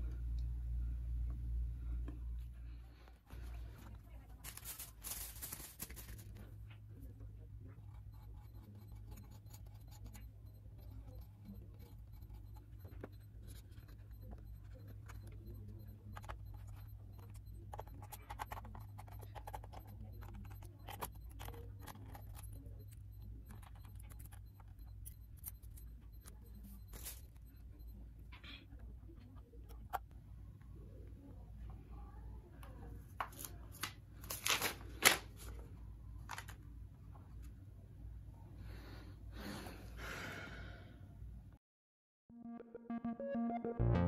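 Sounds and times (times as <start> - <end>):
steady low hum: 0.0 - 34.4.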